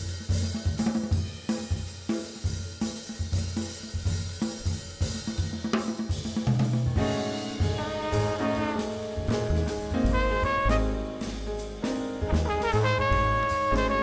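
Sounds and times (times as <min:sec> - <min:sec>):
drums and cymbals: 0:00.0 - 0:14.0
bass line: 0:07.0 - 0:14.0
horns holding long notes: 0:07.8 - 0:09.4, 0:10.1 - 0:11.2, 0:12.4 - 0:14.0.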